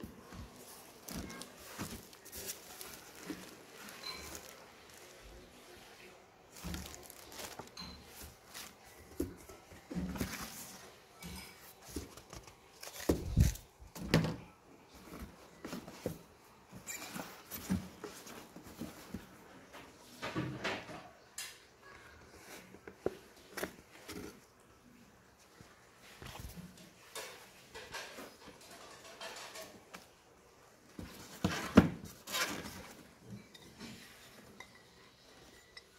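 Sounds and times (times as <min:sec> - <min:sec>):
cardboard box rustling and knocking: 0:00.3 - 0:04.5, 0:06.6 - 0:10.8, 0:11.8 - 0:14.4, 0:31.0 - 0:33.1
plastic bag crinkling: 0:01.0 - 0:05.5, 0:06.5 - 0:09.0.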